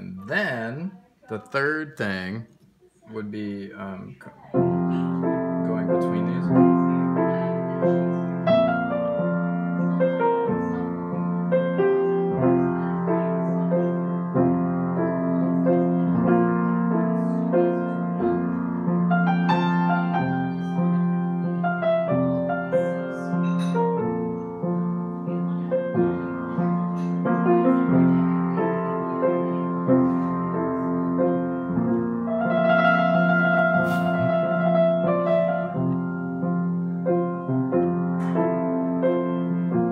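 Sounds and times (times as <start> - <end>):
piano chords: 3.1 - 39.9.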